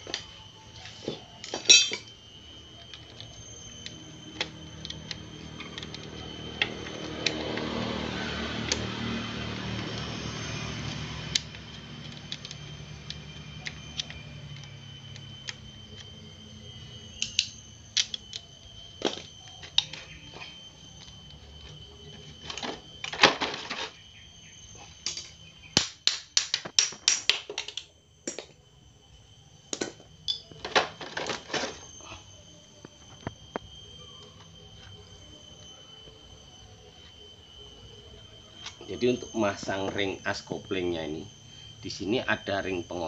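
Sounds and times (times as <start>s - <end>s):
metal engine parts clicking: 11.3s - 15.6s.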